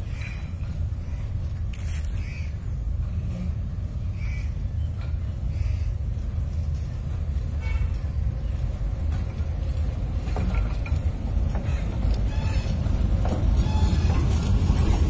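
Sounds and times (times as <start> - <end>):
miniature train rumbling: 0.0 - 15.0.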